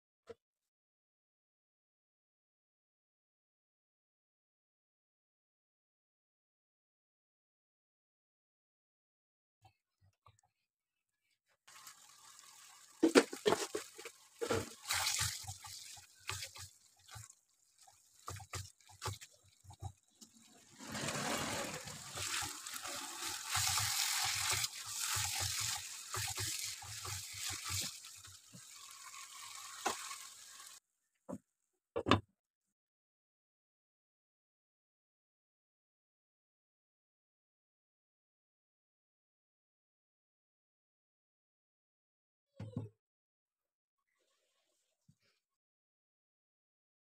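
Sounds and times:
gravy bubbling in a pan: 11.7 - 30.8
pan sizzling: 11.7 - 30.8.

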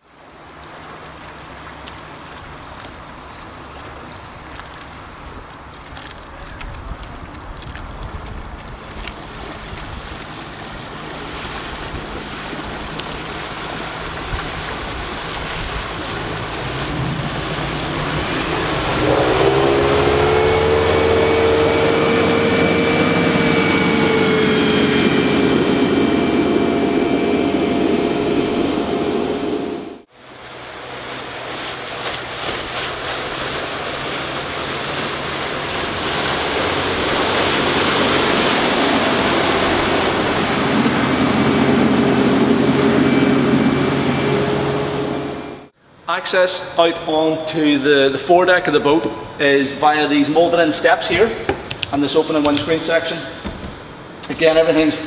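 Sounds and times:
wake rushing: 0.0 - 45.8
boat engine: 0.0 - 55.0
wind on microphone: 5.1 - 30.0.

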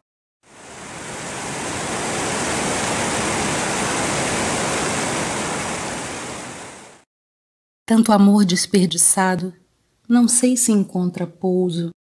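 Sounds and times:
waterfall rushing over rock: 0.5 - 7.0.

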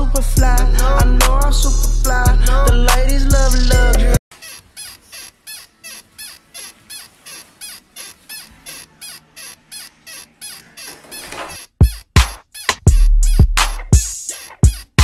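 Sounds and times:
wheelchair squeaking: 4.3 - 13.4.

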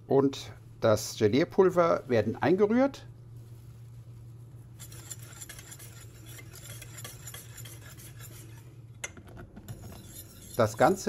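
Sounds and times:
low steady hum: 0.0 - 11.0
whisk swishing in a saucepan: 3.4 - 8.8, 9.7 - 11.0.

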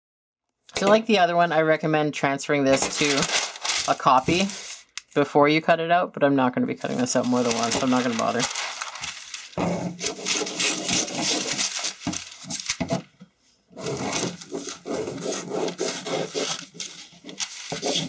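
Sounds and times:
paper rustling: 2.7 - 4.9, 6.8 - 13.1, 13.8 - 18.0
scissors snipping paper: 7.3 - 13.0, 13.8 - 18.0.

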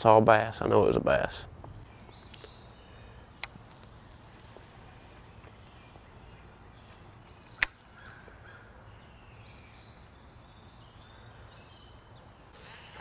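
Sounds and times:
faint birds calling: 1.6 - 13.0
sharp click: 7.6 - 7.8.

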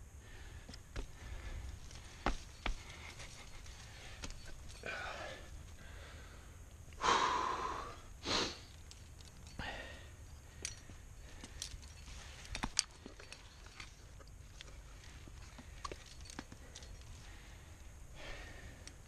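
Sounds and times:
person breathing heavily: 0.1 - 8.8, 9.4 - 13.4, 15.4 - 19.0
climbing gear clinking: 0.5 - 6.0, 8.6 - 19.0.

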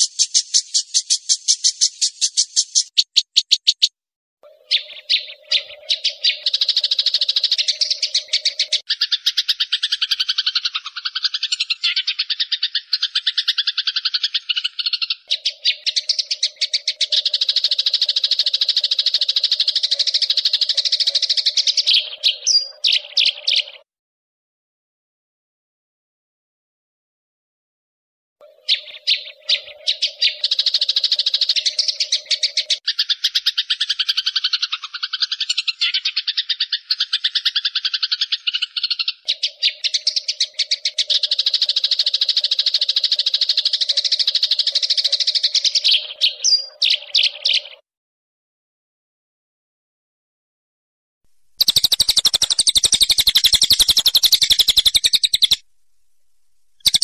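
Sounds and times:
rapid pulsed chirring trill: 51.6 - 55.6.

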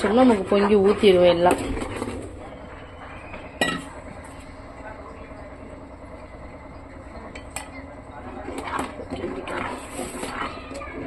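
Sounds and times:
pot boiling and bubbling: 0.0 - 11.0
utensil clinking against pot: 3.6 - 4.2.

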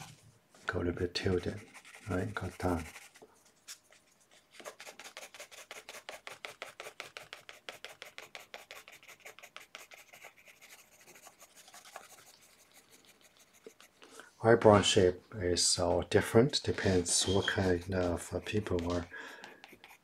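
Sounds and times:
pencil scratching on paper: 0.0 - 0.2, 1.0 - 3.2, 4.5 - 14.0, 16.9 - 20.0.

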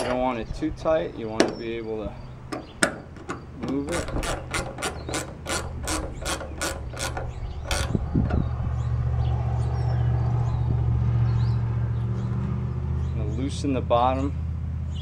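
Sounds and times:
socket ratchet clicking: 2.4 - 8.3.

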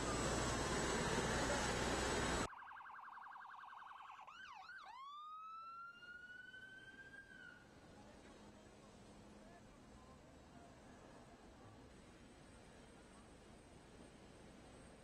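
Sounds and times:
emergency vehicle siren wailing: 0.0 - 7.7
faint falling siren tone: 2.4 - 7.7.

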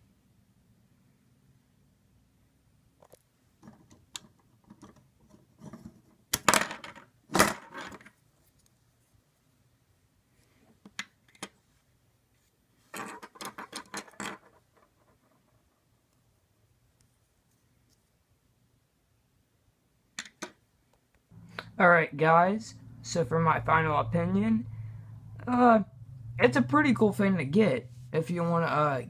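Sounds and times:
plastic parts clattering: 12.9 - 15.4
plastic parts rattling: 12.9 - 15.7.

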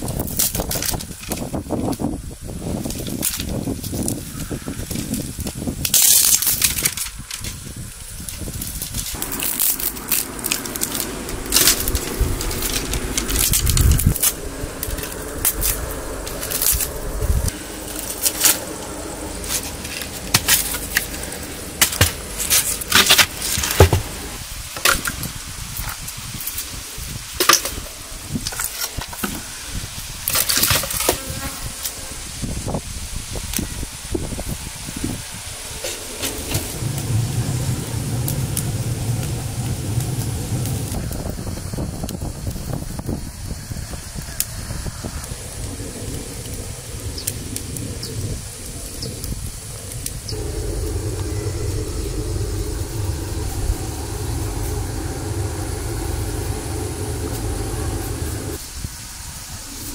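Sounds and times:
insect buzzing: 43.1 - 58.9.

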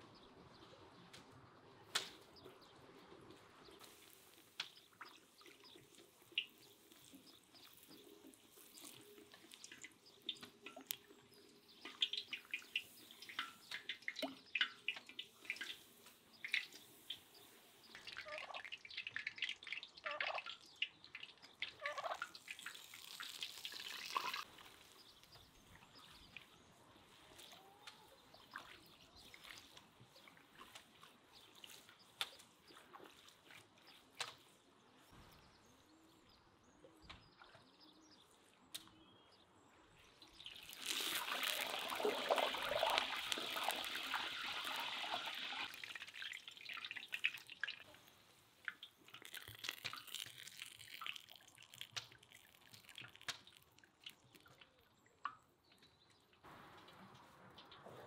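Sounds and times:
hot oil crackling: 3.8 - 25.0, 40.2 - 54.6
oil trickling: 3.8 - 26.4, 40.2 - 56.0.

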